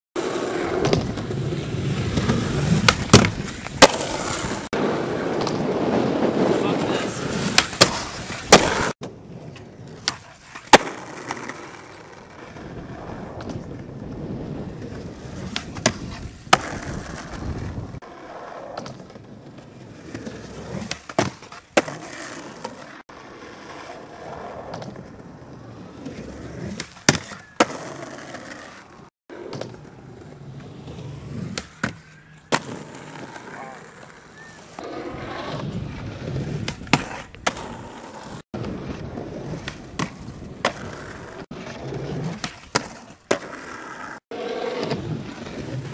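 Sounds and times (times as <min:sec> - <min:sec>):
skateboard wheels rolling on concrete: 0:00.2 - 0:45.9
skateboard clacks: 0:00.3 - 0:12.5.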